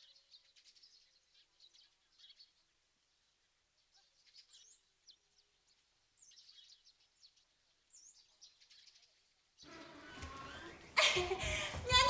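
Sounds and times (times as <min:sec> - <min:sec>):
small birds chirping: 0:00.0 - 0:12.0.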